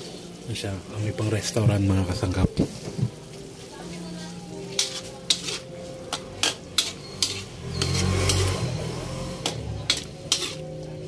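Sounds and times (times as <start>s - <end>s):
metal spatula scraping a wok: 4.5s - 11.0s.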